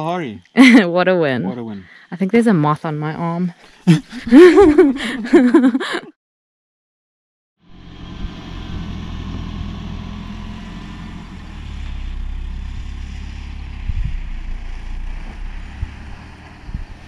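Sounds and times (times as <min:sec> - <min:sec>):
car engine running: 0:07.7 - 0:17.0
low thumps: 0:13.7 - 0:17.0.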